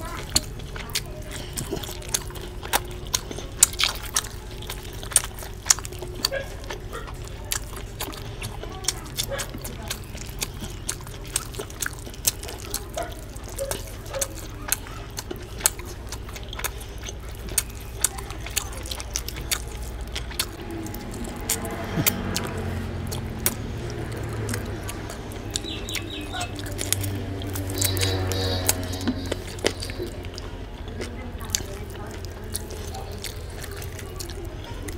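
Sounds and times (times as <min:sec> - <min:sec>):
hand mixing rice and curry: 0:00.0 - 0:34.9
mouth eating sounds: 0:00.0 - 0:34.9
low hum: 0:19.7 - 0:34.0.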